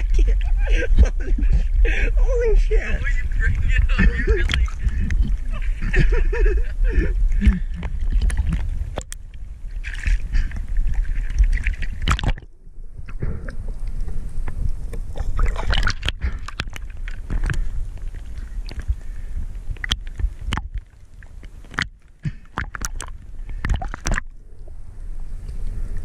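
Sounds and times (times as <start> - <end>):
seawater sloshing and splashing: 2.4 - 6.4, 7.3 - 12.5, 14.6 - 24.3.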